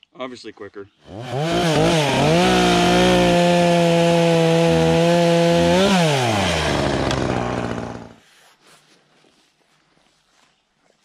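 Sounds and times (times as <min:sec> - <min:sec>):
chainsaw cutting log: 0:01.0 - 0:08.2.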